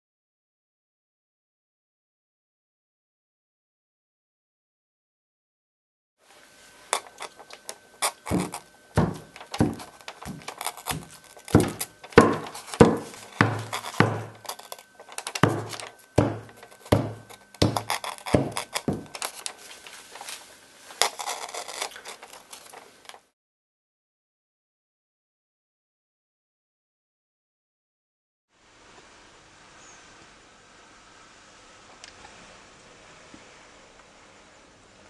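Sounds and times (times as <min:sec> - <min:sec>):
spatula slapping raw meat: 0:08.1 - 0:14.6.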